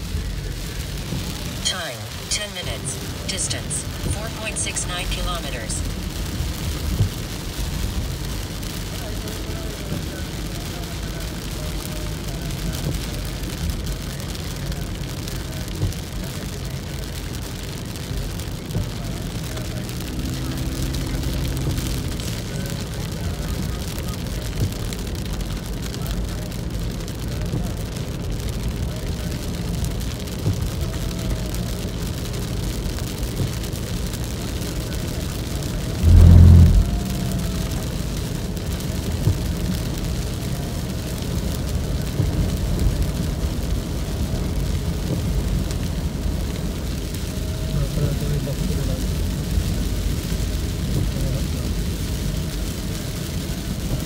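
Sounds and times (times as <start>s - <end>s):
car and tyres rumbling on wet road: 0.0s - 54.0s
heavy rain on car windshield: 0.0s - 54.0s
loud low bump: 35.9s - 38.3s.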